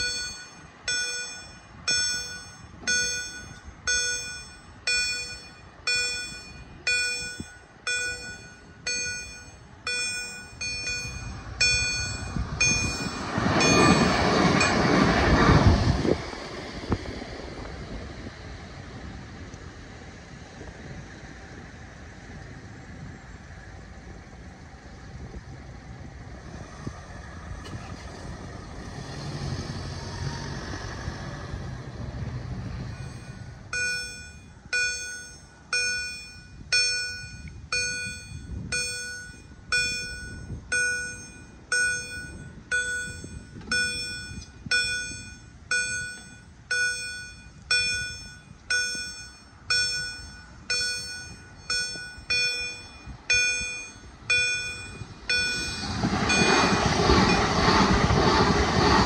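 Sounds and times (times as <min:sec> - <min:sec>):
level crossing warning bell: 0:00.0 - 0:15.4, 0:32.8 - 0:58.9
passing vehicle rumble: 0:00.0 - 0:35.8, 0:49.6 - 0:59.0.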